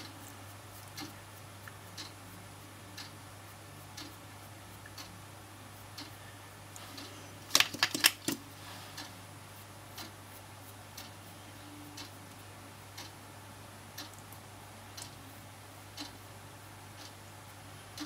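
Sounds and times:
clock ticking: 0.9 - 1.2, 1.9 - 2.2, 4.0 - 4.2, 12.9 - 13.2, 14.0 - 14.2, 15.9 - 16.2, 17.0 - 17.2.

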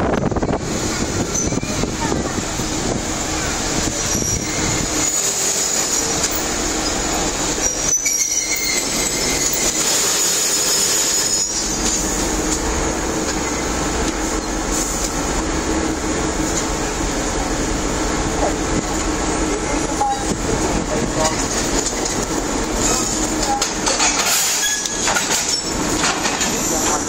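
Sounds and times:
diesel locomotive engine running: 0.0 - 27.0
high wheel squeal: 3.4 - 12.0, 24.2 - 25.9.

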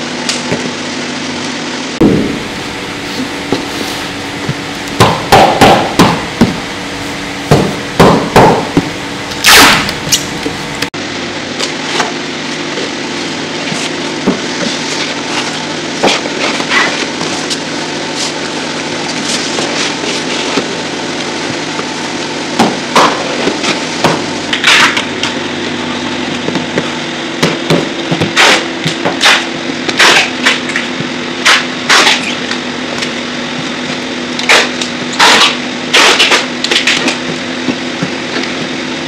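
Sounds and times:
steady low hum: 1.8 - 11.6.

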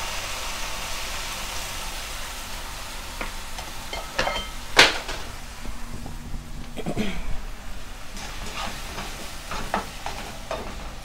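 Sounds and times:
paste sizzling in a pan: 0.0 - 5.6, 7.4 - 11.0
kitchen utensils clinking: 3.6 - 5.3.

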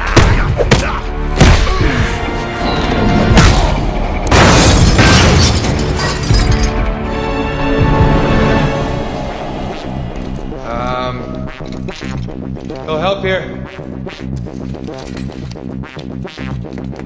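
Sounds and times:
dramatic film score: 0.0 - 17.0
punch and body-hit booms: 0.2 - 1.8
crash: 3.3 - 6.9.

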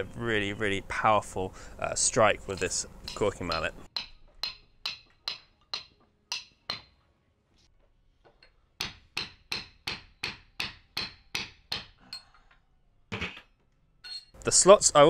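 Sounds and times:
mallet striking metal iron: 2.6 - 6.9, 8.8 - 12.0.

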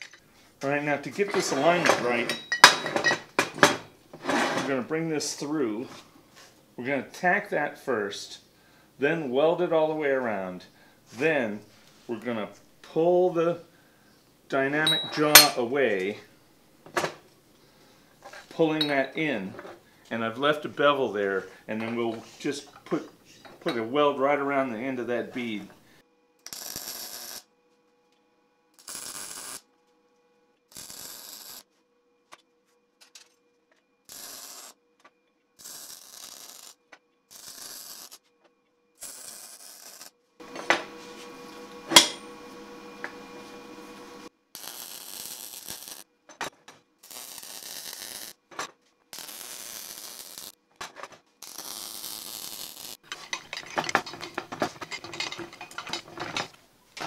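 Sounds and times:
welding arc crackling: 26.5 - 27.4, 28.8 - 29.6, 30.7 - 31.6, 34.1 - 34.8, 35.6 - 38.2, 39.0 - 46.1, 47.0 - 48.4, 49.2 - 50.6, 51.4 - 53.3.

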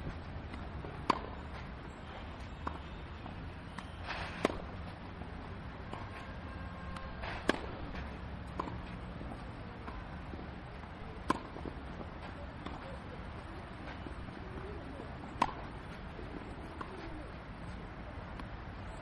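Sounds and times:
low background noise: 0.0 - 19.0
racket hitting tennis ball: 0.5 - 1.5, 3.7 - 4.7, 5.8 - 10.4, 11.2 - 13.0, 15.4 - 15.9.

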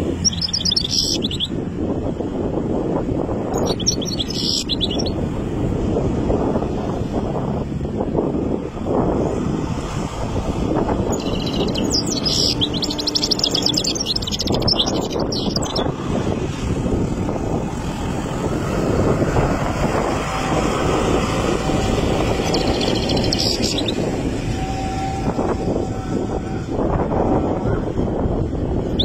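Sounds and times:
goldfinch twittering song: 0.0 - 1.6, 3.5 - 5.2, 10.5 - 16.0, 19.6 - 25.2
steady low rumble: 0.0 - 29.0.

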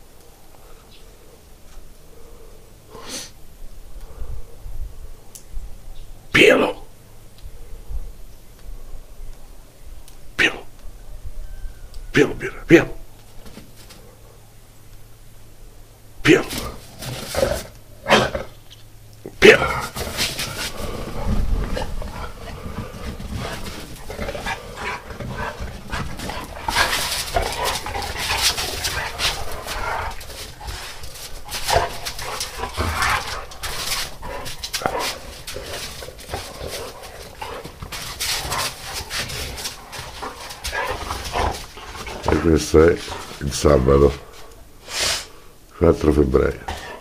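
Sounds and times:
dogs play-fighting noises: 16.4 - 18.6, 19.4 - 44.6
scuffling and knocks: 19.7 - 44.5.

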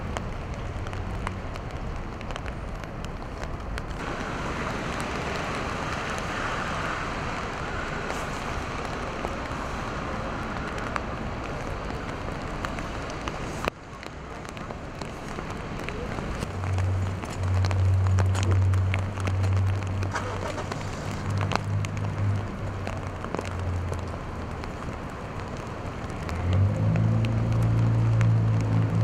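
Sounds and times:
rain on wet street: 0.0 - 29.0
traffic hiss: 3.2 - 29.0.

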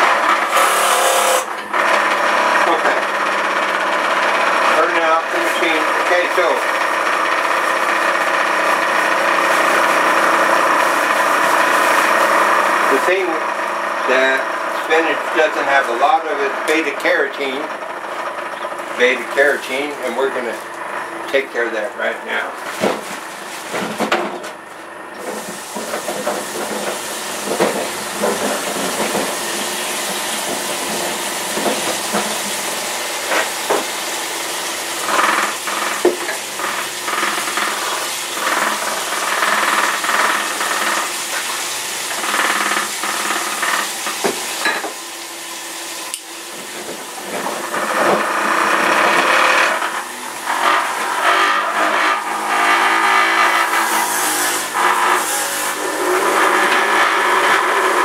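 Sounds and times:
tap water running and splashing: 6.0 - 13.2, 25.1 - 53.9.

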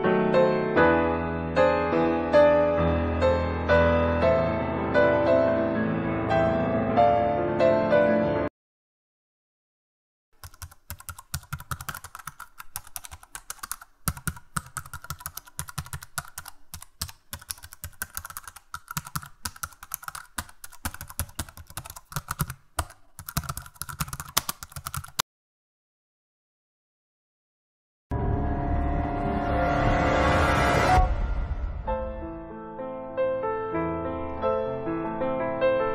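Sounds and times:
keyboard typing: 10.4 - 25.2.

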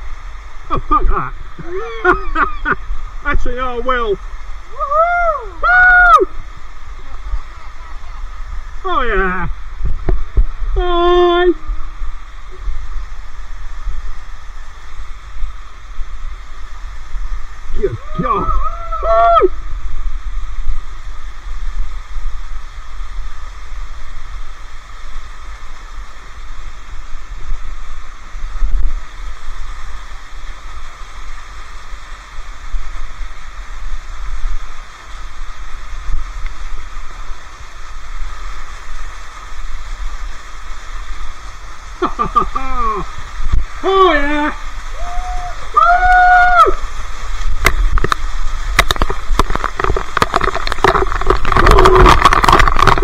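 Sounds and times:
waterfall rushing: 0.0 - 53.0.

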